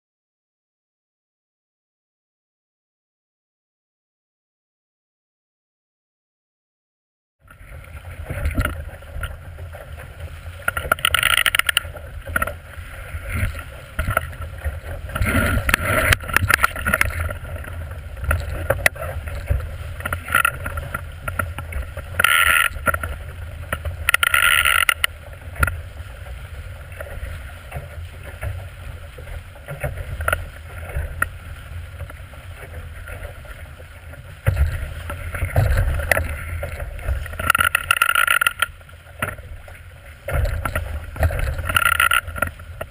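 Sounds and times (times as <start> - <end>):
water splashing along hull: 7.4 - 42.9
bow slamming into waves: 13.2 - 24.9.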